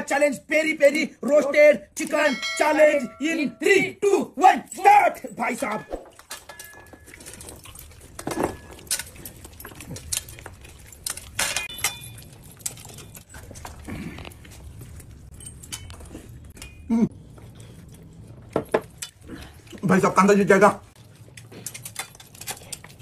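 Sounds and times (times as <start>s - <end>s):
light metallic jingling: 2.1s - 7.5s
small eating clicks: 5.4s - 23.0s.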